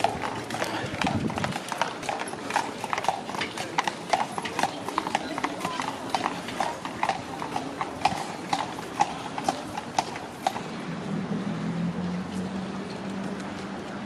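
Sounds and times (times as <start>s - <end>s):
horse hooves clip-clopping: 0.0s - 10.7s.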